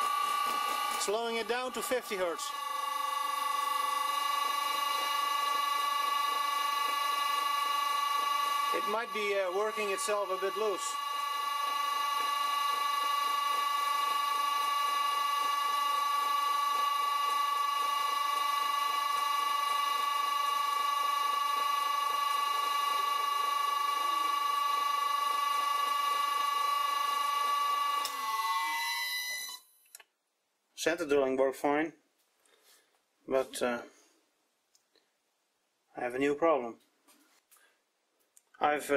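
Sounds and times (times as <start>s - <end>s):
lathe running: 0.0s - 28.8s
high electrical motor whine: 0.0s - 29.6s.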